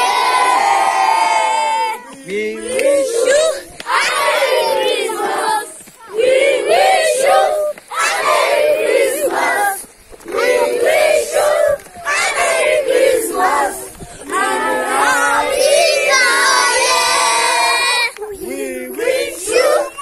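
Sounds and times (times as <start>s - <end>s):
children shouting in unison: 0.0s - 2.2s, 10.8s - 18.3s.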